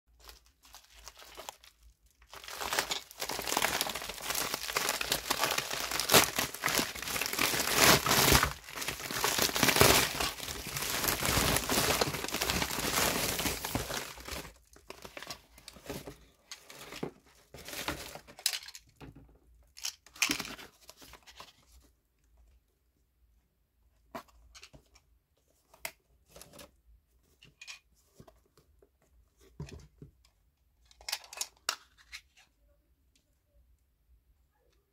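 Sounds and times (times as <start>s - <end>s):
padded envelope tearing and crinkling: 0.2s - 16.0s.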